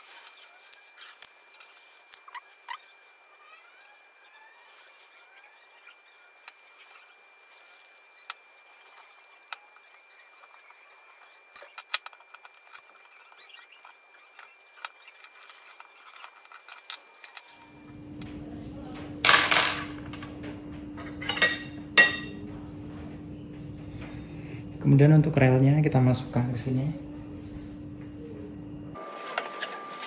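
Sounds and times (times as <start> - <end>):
small metal parts clicking: 6.5 - 17.5.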